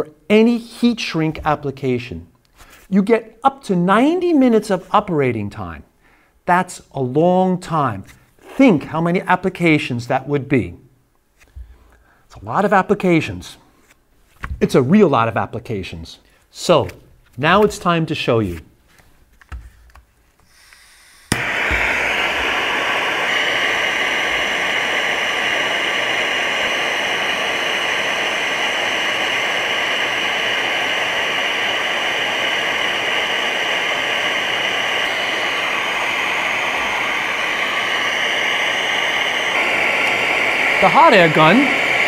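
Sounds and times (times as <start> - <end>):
hot air gun hissing: 20.4 - 42.0.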